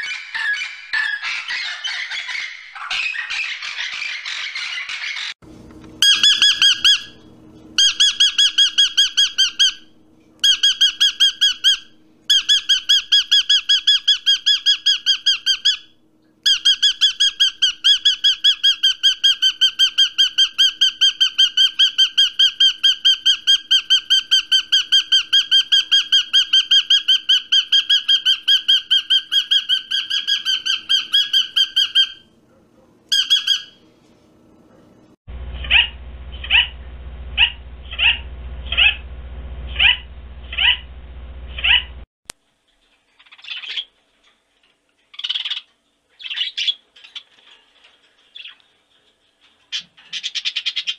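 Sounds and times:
bird calling in rapid notes: 0:00.0 - 0:05.4, 0:06.0 - 0:07.2, 0:07.8 - 0:15.9, 0:33.1 - 0:33.8, 0:35.5 - 0:36.8, 0:37.4 - 0:39.0, 0:39.8 - 0:40.9, 0:41.5 - 0:42.0.

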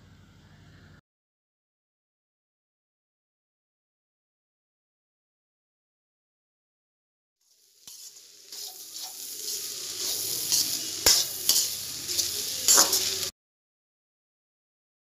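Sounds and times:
rice sizzling in a pan: 0:07.4 - 0:13.3
metal spatula scraping pan: 0:07.9 - 0:13.3
spatula clinking on pan: 0:10.0 - 0:13.2.

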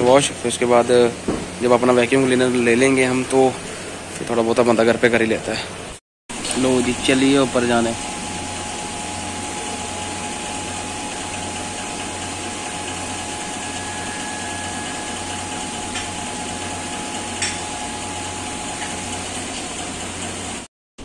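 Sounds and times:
hydraulic pump humming: 0:06.3 - 0:20.7.

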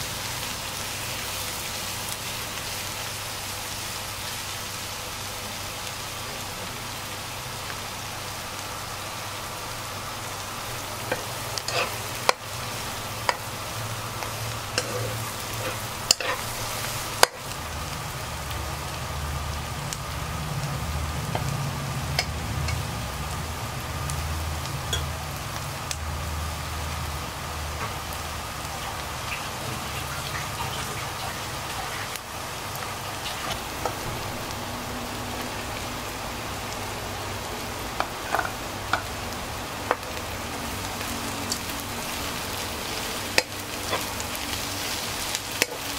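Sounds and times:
shallots sizzling in oil: 0:00.0 - 0:45.9
ladle scraping pan: 0:11.1 - 0:12.4, 0:14.7 - 0:17.4.

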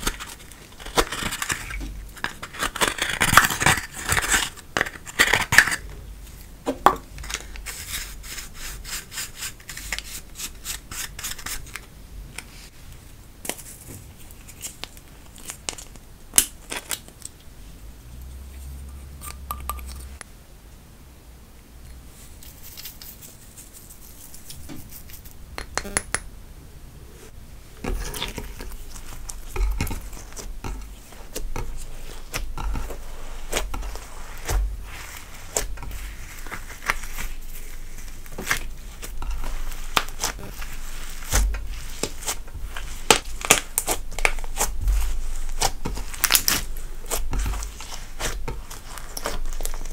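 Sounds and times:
spatula scraping makeup powder: 0:00.0 - 0:05.9, 0:07.2 - 0:11.8, 0:27.8 - 0:49.9
hands kneading slime: 0:27.8 - 0:49.9.

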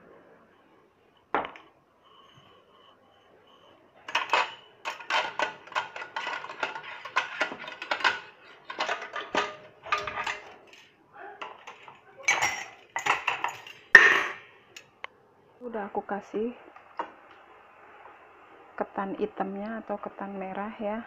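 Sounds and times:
metal utensil scraping steel bowls: 0:02.0 - 0:14.4.

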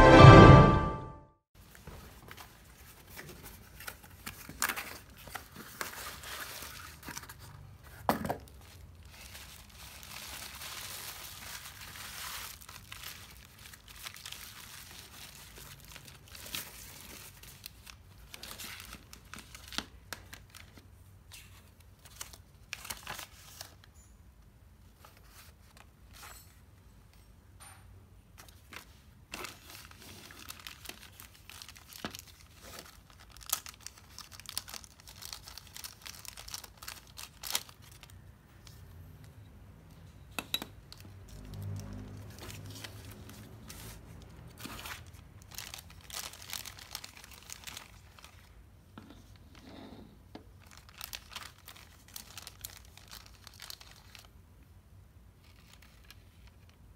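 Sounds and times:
plastic wrap crinkling: 0:08.4 - 0:23.9, 0:28.6 - 0:38.3, 0:40.9 - 0:48.6, 0:50.5 - 0:54.4, 0:55.4 - 0:56.9.

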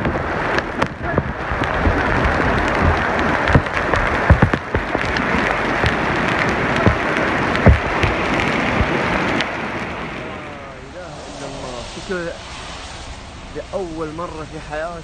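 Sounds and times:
sharp knocks: 0:00.0 - 0:06.0, 0:06.8 - 0:09.0
heavy thumps: 0:00.0 - 0:09.2
heavy rain on stone paving: 0:00.0 - 0:15.0.

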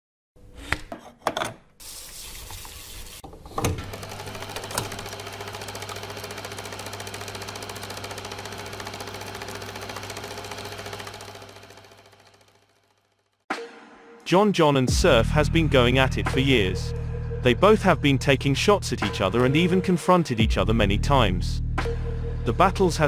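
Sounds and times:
film projector clattering: 0:03.3 - 0:13.3
film reel clicking onto spindle: 0:03.6 - 0:11.2.

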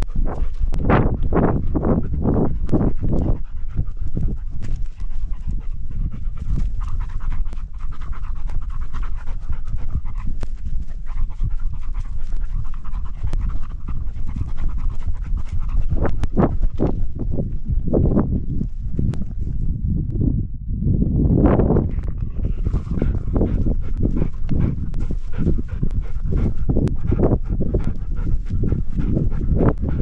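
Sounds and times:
dog panting: 0:00.0 - 0:19.5, 0:21.7 - 0:30.0
low rumble: 0:00.0 - 0:30.0.

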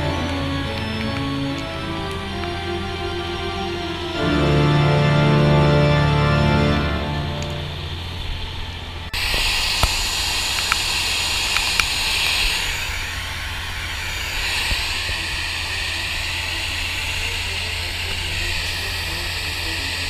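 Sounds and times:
sharp ticks: 0:00.0 - 0:02.6, 0:09.2 - 0:20.0
fire hose spraying water: 0:09.2 - 0:20.0.

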